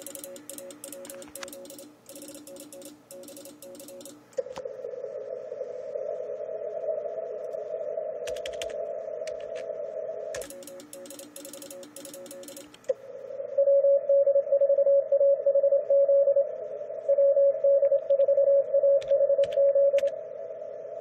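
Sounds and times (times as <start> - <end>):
computer keyboard typing: 0.0 - 4.4, 8.3 - 9.6, 10.4 - 12.9, 19.0 - 20.1
radio receiver hiss: 0.0 - 13.6.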